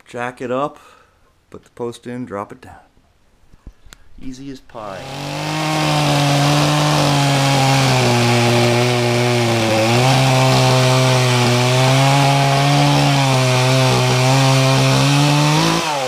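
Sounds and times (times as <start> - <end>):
chainsaw cutting wood: 4.7 - 16.0.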